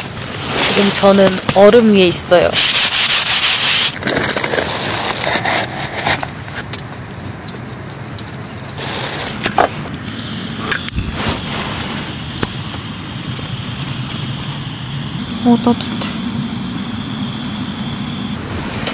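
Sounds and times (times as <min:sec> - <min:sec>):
gloved hand scraping snow: 0:00.0 - 0:06.2, 0:08.8 - 0:09.8, 0:11.0 - 0:12.2.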